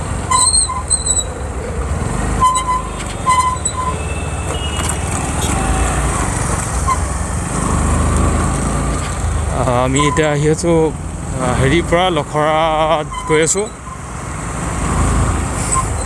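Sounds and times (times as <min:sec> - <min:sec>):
short vehicle horn beeps: 0:02.4 - 0:06.0.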